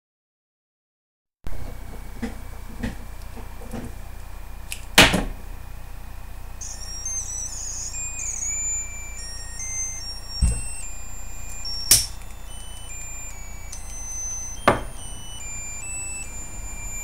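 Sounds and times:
high-pitched electronic melody: 0:06.6 - 0:17.0.

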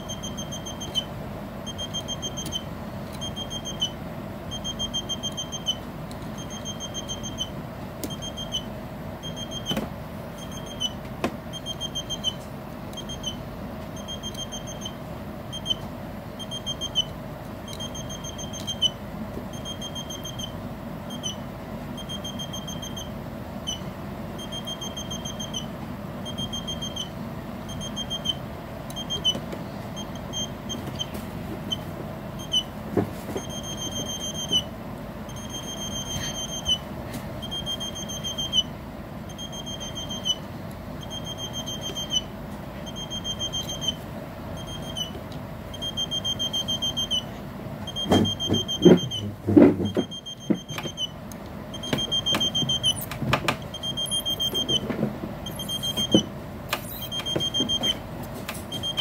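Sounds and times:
electronic bird chirping: 0:51.8 - 0:54.8, 0:55.4 - 0:56.2, 0:56.8 - 0:57.9.

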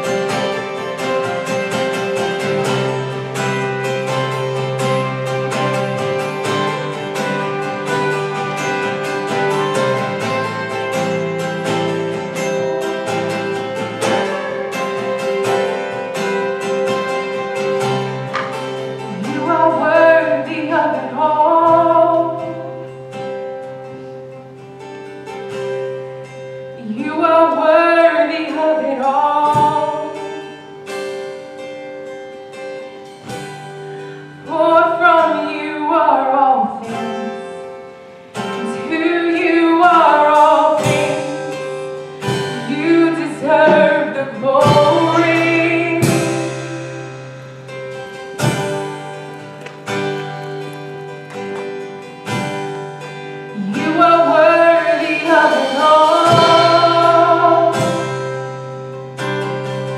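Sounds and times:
guitar chords: 0:00.0 - 0:59.9
worship band music: 0:00.0 - 0:59.9
person singing: 0:19.1 - 0:22.8, 0:38.4 - 0:47.1, 0:53.5 - 0:58.3.

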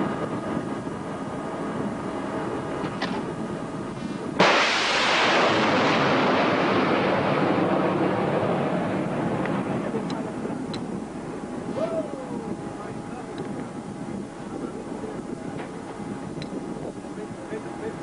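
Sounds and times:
ship noise: 0:00.0 - 0:18.0
wind: 0:00.0 - 0:18.0
missile launch blast and roar: 0:04.4 - 0:10.0.

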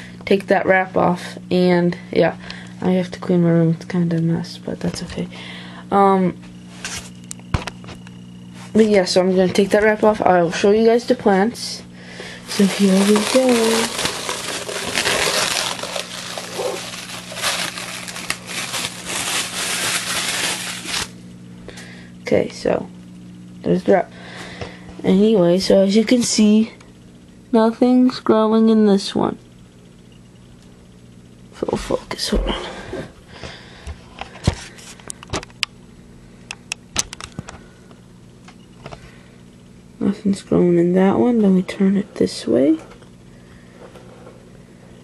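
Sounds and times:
steady low hum: 0:00.0 - 0:45.0
plastic wrap crinkling: 0:12.4 - 0:21.2.

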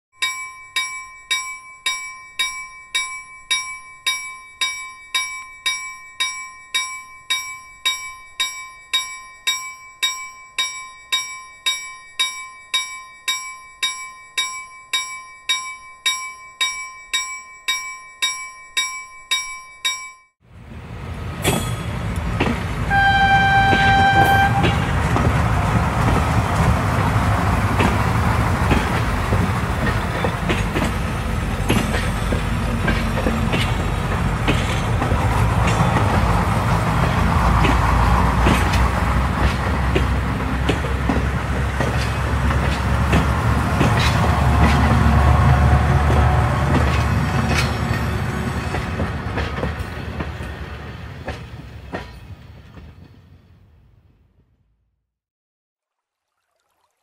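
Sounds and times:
bell ringing: 0:00.2 - 0:20.4
train rolling: 0:20.5 - 0:54.5
train horn blast: 0:22.8 - 0:25.2, 0:44.2 - 0:47.3.

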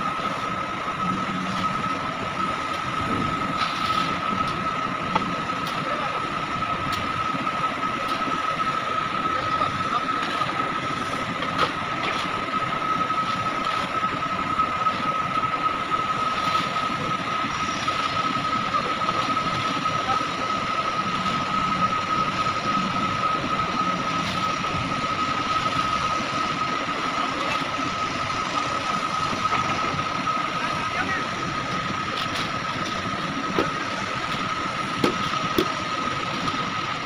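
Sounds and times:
heavy machinery whining and rumbling: 0:00.0 - 0:37.0.

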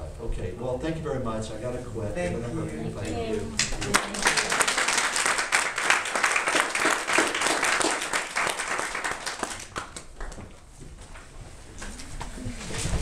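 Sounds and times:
audience applauding: 0:03.5 - 0:10.5.

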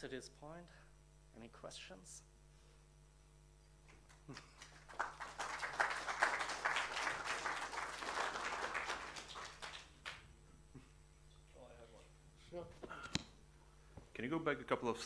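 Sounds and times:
audience applause: 0:04.3 - 0:10.2.

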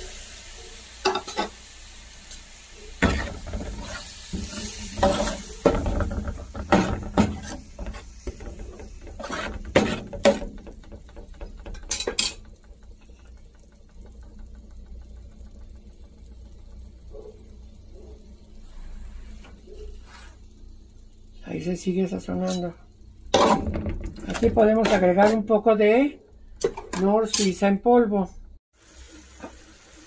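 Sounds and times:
pan cooking hiss: 0:00.0 - 0:27.6, 0:28.7 - 0:30.0
spoon scraping a metal pan: 0:03.0 - 0:10.7, 0:22.2 - 0:25.6, 0:26.7 - 0:27.7.

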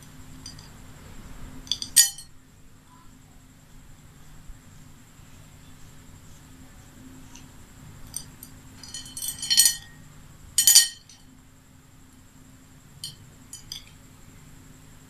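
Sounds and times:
beads clinking against a plate: 0:01.7 - 0:02.3, 0:08.1 - 0:10.0, 0:10.6 - 0:11.3, 0:13.0 - 0:14.0.

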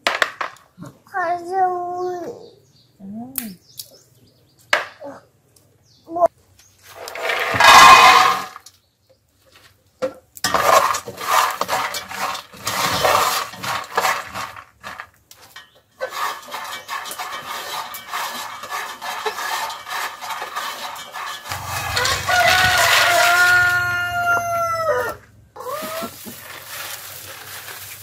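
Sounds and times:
peanuts rattling in metal pot: 0:07.0 - 0:08.6, 0:10.4 - 0:24.2, 0:26.1 - 0:28.0.

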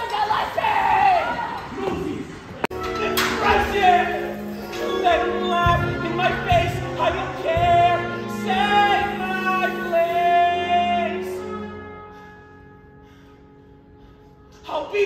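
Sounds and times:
musical accompaniment: 0:02.6 - 0:15.0
person singing with vibrato: 0:02.9 - 0:12.0.

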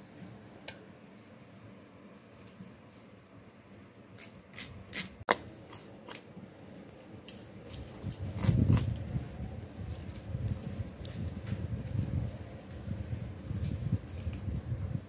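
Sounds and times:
knife scraping raw fish flesh: 0:04.2 - 0:06.3, 0:07.3 - 0:09.0.

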